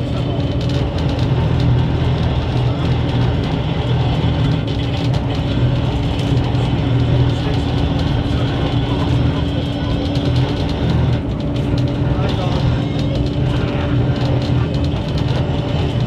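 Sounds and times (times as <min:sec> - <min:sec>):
tram motors and wheels rumbling: 0:00.0 - 0:16.0.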